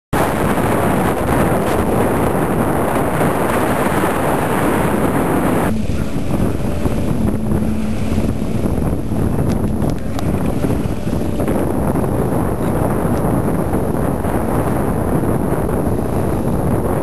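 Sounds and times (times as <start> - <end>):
water rushing along hull: 0.2 - 17.0
wind buffeting microphone: 0.2 - 17.0.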